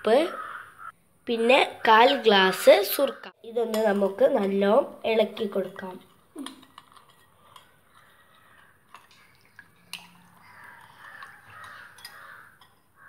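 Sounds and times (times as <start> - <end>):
water swishing in a bowl: 3.8 - 12.9.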